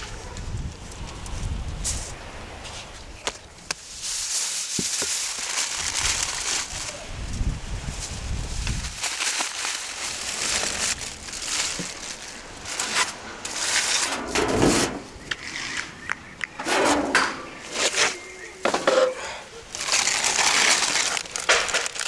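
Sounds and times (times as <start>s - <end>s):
aluminium foil crinkling: 3.8s - 14.9s, 19.7s - 22.0s
metal rack clinking and scraping: 12.8s - 15.2s, 16.6s - 19.4s
lid scraping over oven opening: 14.0s - 15.1s, 16.6s - 18.1s.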